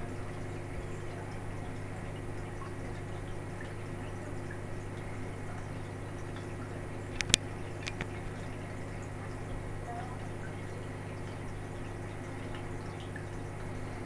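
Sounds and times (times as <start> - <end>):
aquarium pump humming: 0.0 - 14.0
faint drips: 0.0 - 14.0
water noise: 0.0 - 14.0
sharp clicks: 7.2 - 8.1.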